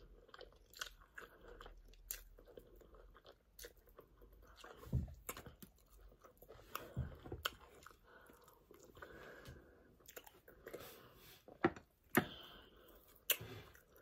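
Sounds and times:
chewing and mouth smacking: 0:00.0 - 0:09.1, 0:10.0 - 0:10.9.

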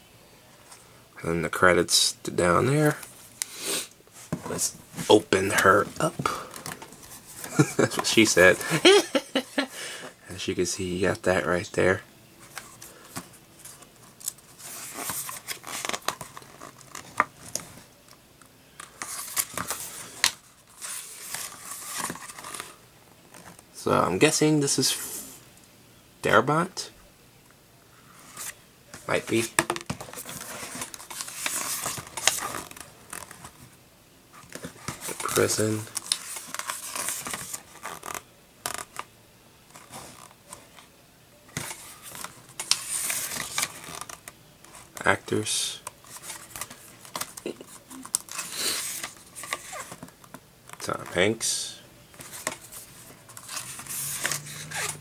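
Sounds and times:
pages rustling and sliding: 0:04.1 - 0:09.0, 0:12.4 - 0:17.9, 0:18.8 - 0:23.6, 0:28.0 - 0:39.1, 0:39.7 - 0:40.9, 0:41.5 - 0:51.5, 0:52.1 - 0:55.0.

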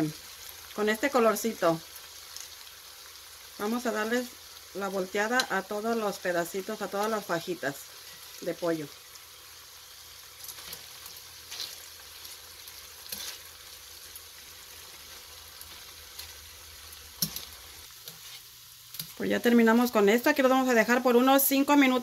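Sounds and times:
chicken frying sizzle: 0:00.0 - 0:22.0
metal tongs clicking on pot: 0:17.2 - 0:17.5.

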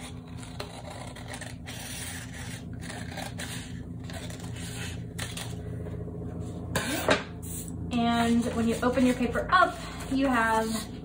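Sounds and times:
scissors snipping paper: 0:00.0 - 0:05.6.

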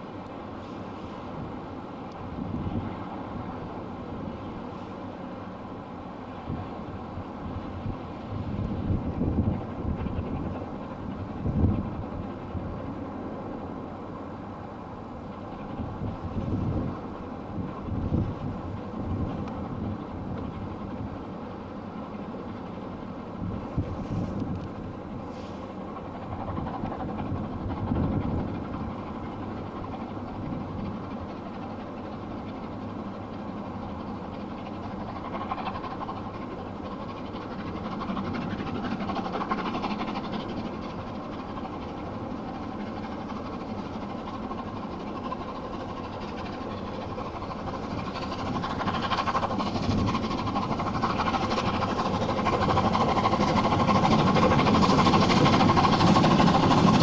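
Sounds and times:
steam locomotive exhaust rumbling: 0:42.3 - 0:57.0.

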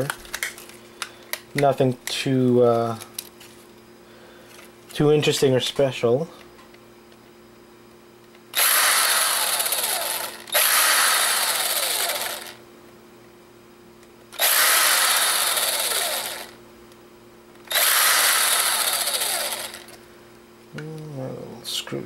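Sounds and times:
impact driver driving screws: 0:08.6 - 0:12.6, 0:14.4 - 0:16.5, 0:17.7 - 0:20.0.

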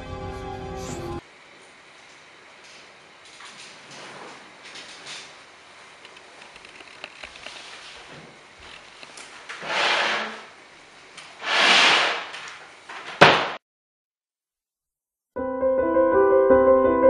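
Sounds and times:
short rushes of noise: 0:11.4 - 0:12.4
sharp knock: 0:13.2 - 0:13.6
piano music: 0:15.4 - 0:17.0.

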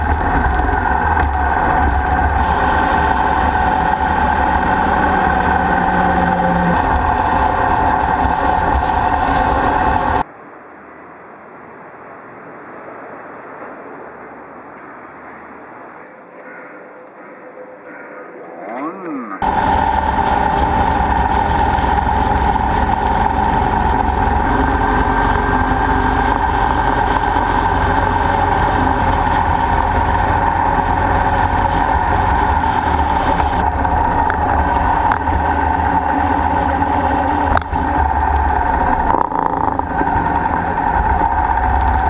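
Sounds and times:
motorcycle engine running: 0:00.0 - 0:10.2, 0:19.4 - 0:42.0.

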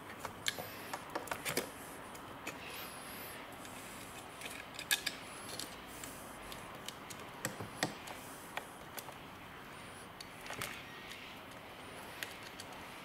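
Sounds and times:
plastic connectors clicking: 0:12.2 - 0:12.8.

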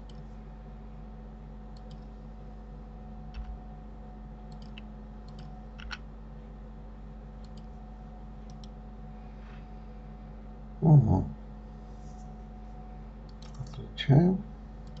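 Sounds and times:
steady low hum: 0:00.0 - 0:15.0
computer mouse and keyboard clicks: 0:01.7 - 0:02.1, 0:03.3 - 0:03.6, 0:04.5 - 0:06.0, 0:07.4 - 0:07.8, 0:08.4 - 0:08.8, 0:13.3 - 0:13.9.

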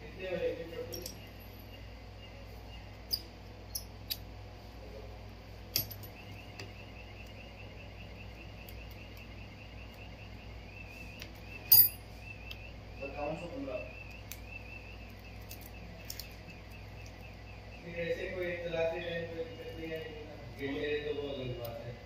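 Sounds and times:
steady low hum: 0:00.0 - 0:22.0
small tools clicking on metal: 0:00.9 - 0:01.3.

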